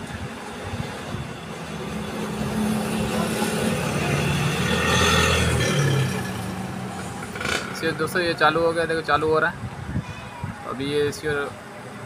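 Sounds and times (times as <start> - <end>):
motor vehicle passing: 0.6 - 8.5.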